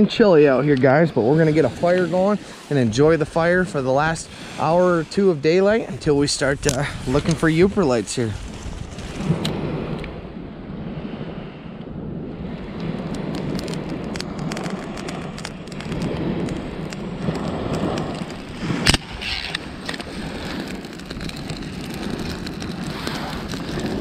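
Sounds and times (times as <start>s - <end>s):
waves washing onto pebbles: 0.0s - 10.0s, 12.5s - 24.0s
wind buffeting microphone: 0.0s - 24.0s
kindling clicks and crackles: 5.9s - 10.2s, 12.6s - 24.0s.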